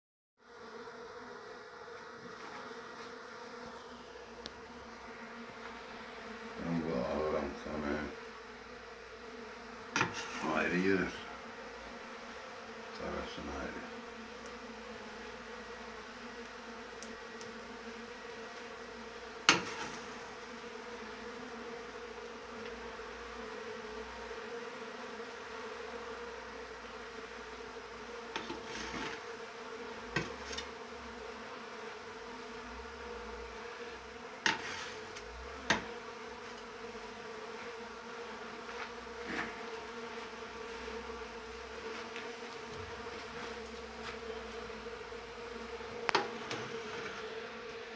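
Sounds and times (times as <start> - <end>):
bees buzzing: 0.4 - 47.9.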